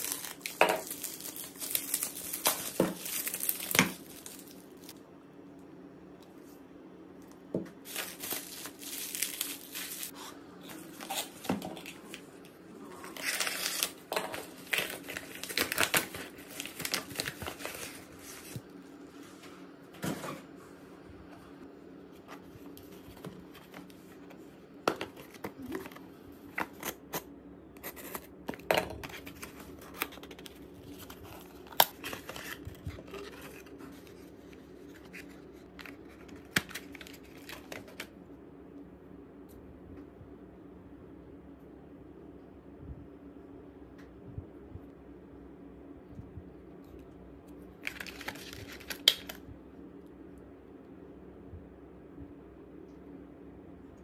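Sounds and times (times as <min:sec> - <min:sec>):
packaging crinkling and tearing: 0:00.0 - 0:05.0, 0:07.8 - 0:10.2, 0:13.0 - 0:18.6, 0:25.0 - 0:38.1, 0:47.8 - 0:49.4.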